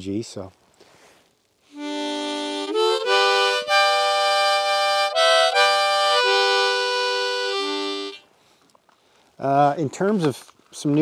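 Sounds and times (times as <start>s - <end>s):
harmonica chords: 1.7s - 8.3s.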